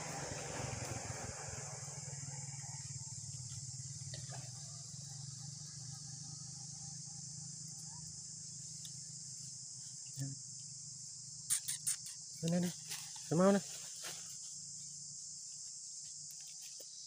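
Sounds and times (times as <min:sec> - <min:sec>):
insects chorus: 0:00.0 - 0:17.0.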